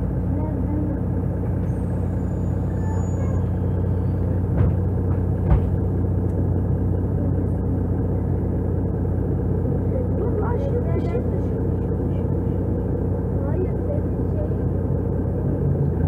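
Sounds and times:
bus diesel engine idling: 0.0s - 16.0s
dull thumps: 4.4s - 6.0s.

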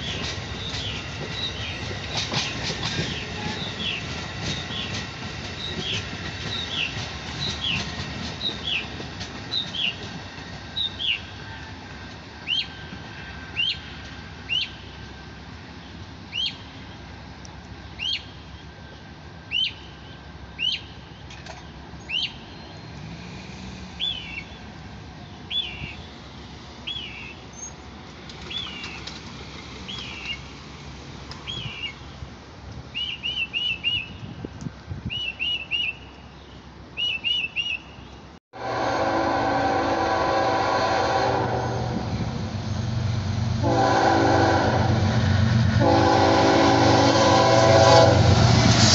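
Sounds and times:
train rumble: 0.0s - 37.0s, 38.3s - 48.9s
songbird whistling: 33.0s - 34.3s, 35.1s - 36.2s, 37.0s - 38.1s.

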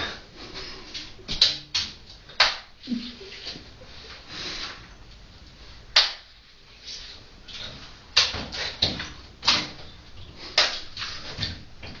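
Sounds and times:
sharp hand claps: 1.3s - 2.8s, 6.0s - 6.3s, 10.6s - 10.9s.

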